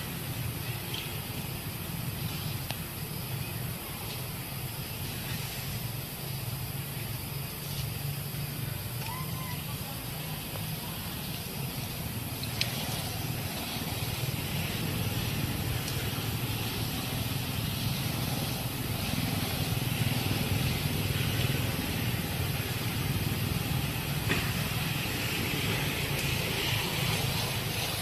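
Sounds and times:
hiss: 0.0 - 28.0.

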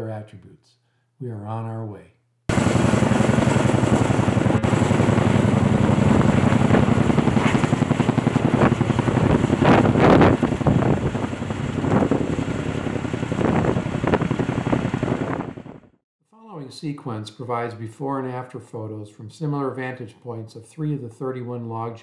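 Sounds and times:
helicopter rotors beating: 2.5 - 15.9.

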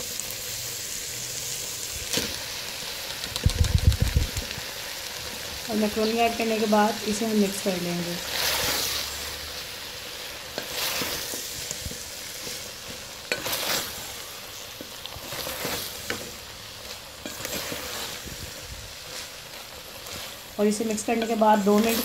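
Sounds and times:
food sizzling in pot: 0.0 - 22.0
wooden spoon scraping pot: 17.2 - 18.3.

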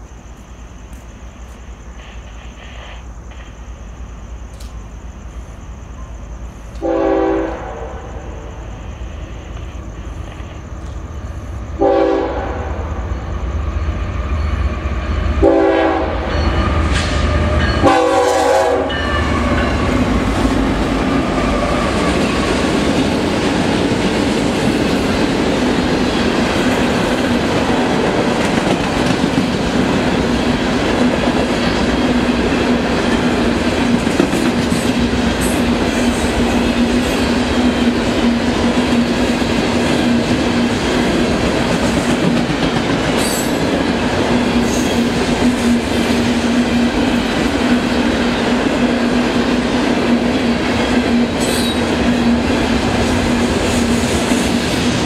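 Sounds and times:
locomotive air horn blasts: 6.8 - 8.1, 11.8 - 12.8, 15.4 - 16.3, 17.8 - 19.0
train wheels clattering on rails: 16.2 - 55.0.

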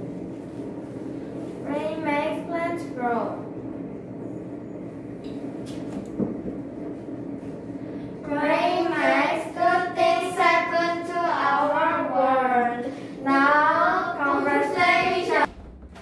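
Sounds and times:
children singing together: 8.8 - 15.5.

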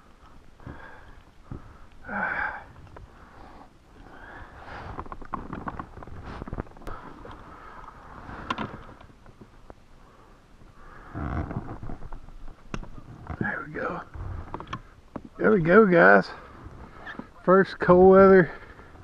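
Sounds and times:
rustling: 2.7 - 9.8.

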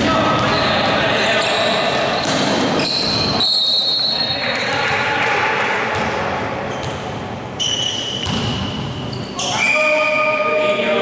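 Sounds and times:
voices echoing in a hall: 0.0 - 11.0
referee's whistle: 2.8 - 4.4.

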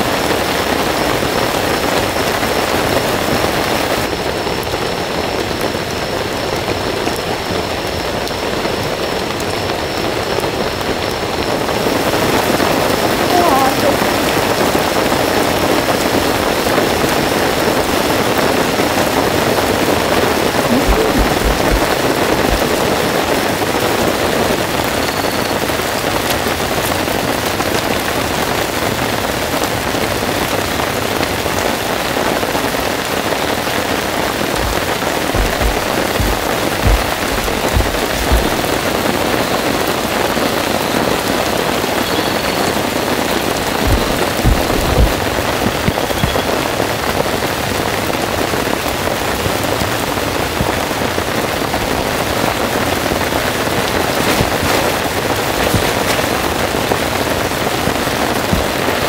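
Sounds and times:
heavy rain falling: 0.0 - 59.0
dull low thumps: 20.7 - 23.0, 34.5 - 39.1, 43.8 - 46.4.

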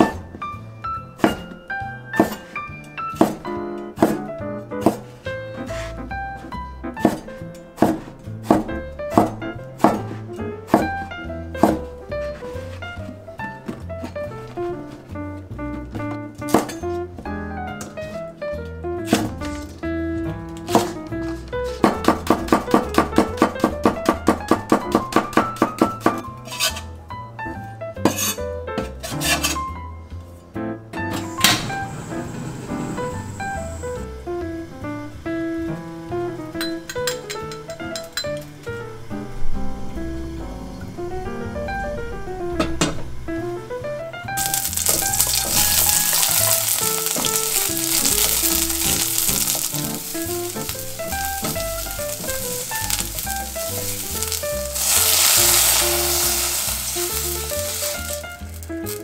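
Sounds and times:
background music with plucked melody: 0.0 - 59.0
knife chopping on cutting board: 1.2 - 1.6, 2.2 - 5.1, 7.0 - 11.9, 20.7 - 26.2
knife scraping across board: 5.7 - 6.0, 26.4 - 26.9, 28.1 - 29.6
eggplant sizzling in oil: 44.4 - 59.0
wooden spatula stirring: 44.4 - 59.0.

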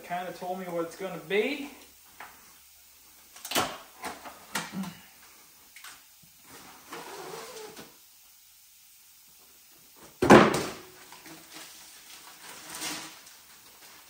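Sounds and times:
box thumping on concrete floor: 10.2 - 10.8
plastic banner crinkling: 11.0 - 14.0.

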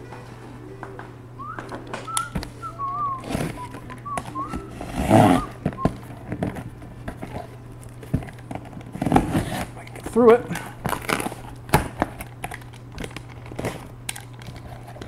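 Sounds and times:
man whistling: 1.4 - 6.0
cardboard scraping and clicking: 3.2 - 9.8.

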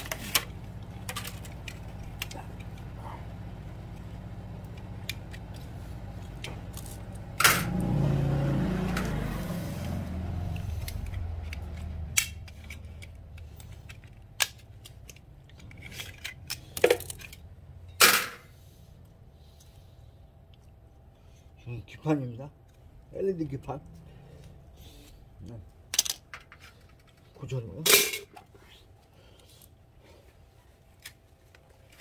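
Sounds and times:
wire cutters snipping wire: 9.8 - 17.2
metal parts clicking: 10.5 - 18.4, 25.9 - 27.3.

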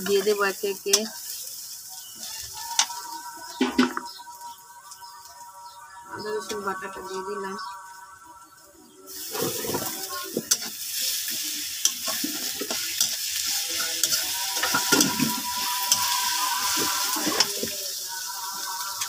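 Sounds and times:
metal spatula scraping a pan: 0.0 - 4.0, 9.1 - 19.0
onions sizzling in hot oil: 0.0 - 8.0, 9.0 - 19.0.

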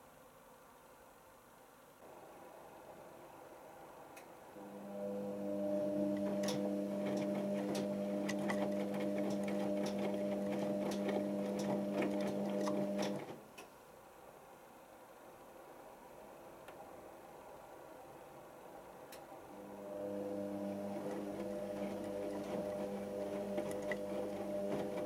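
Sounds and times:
washing machine motor hum: 4.6 - 13.4, 19.4 - 25.0.

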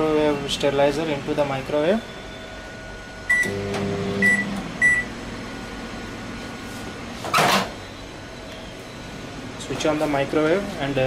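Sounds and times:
microwave low hum: 0.0 - 11.0
microwave short high beeps: 3.3 - 5.1.

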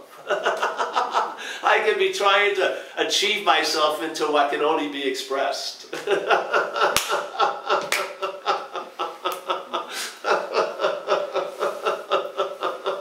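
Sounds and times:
man laughing: 0.1 - 1.6, 5.9 - 13.0.

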